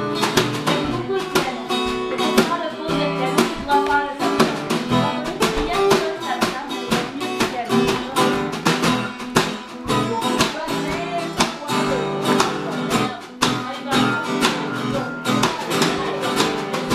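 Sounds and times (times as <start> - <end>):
acoustic guitar blues: 0.0 - 16.9.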